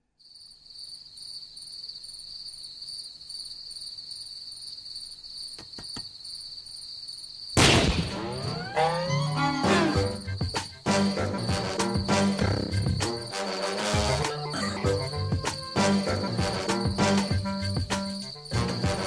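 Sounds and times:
cartoon sound effects with sliding tones: 8.1 - 10.3, 13.6 - 16.2
high insect trill: 8.2 - 19.0.

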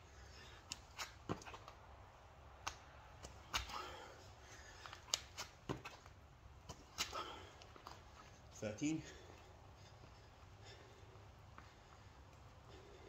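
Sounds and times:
man breathing heavily: 0.0 - 0.7, 3.4 - 5.1, 6.9 - 13.0
shoes tapping on exercise mat: 4.8 - 8.3.

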